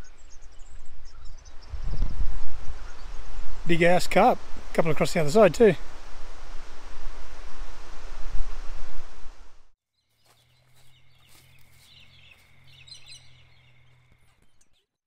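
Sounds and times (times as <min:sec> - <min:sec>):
faint birds chirping: 0:00.0 - 0:04.9, 0:09.9 - 0:15.0
wind buffeting microphone: 0:00.0 - 0:09.6.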